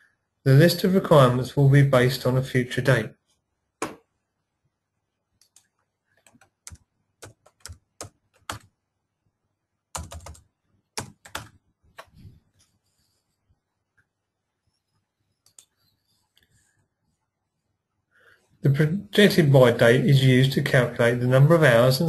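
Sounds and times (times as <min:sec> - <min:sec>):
computer keyboard keystrokes: 0:05.4 - 0:08.7, 0:10.0 - 0:10.4, 0:11.0 - 0:12.2.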